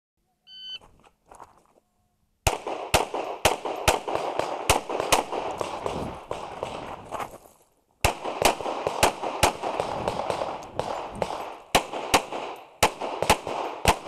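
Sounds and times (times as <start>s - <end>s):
electronic timer beep: 0.4s - 0.8s
pistol shots: 2.4s - 7.0s, 8.0s - 14.0s.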